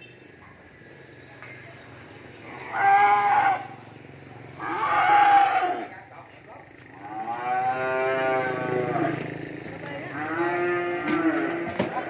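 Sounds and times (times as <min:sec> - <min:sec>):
cattle mooing: 0:02.5 - 0:03.8, 0:04.6 - 0:05.9, 0:07.0 - 0:09.4, 0:10.0 - 0:11.8.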